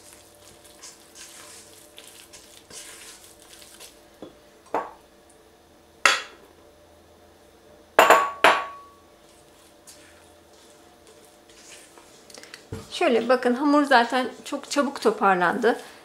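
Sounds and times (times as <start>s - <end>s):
spatula stirring stiff dough: 0.0s - 4.2s, 9.2s - 16.0s.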